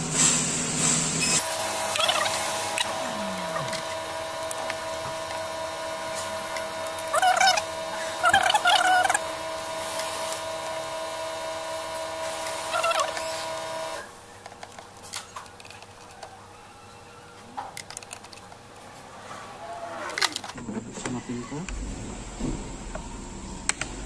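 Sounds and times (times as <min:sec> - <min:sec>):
steady hum: 0:00.0 - 0:15.0, 0:20.2 - 0:24.0
warbling squeals: 0:01.2 - 0:03.9, 0:07.0 - 0:09.3, 0:12.6 - 0:14.1.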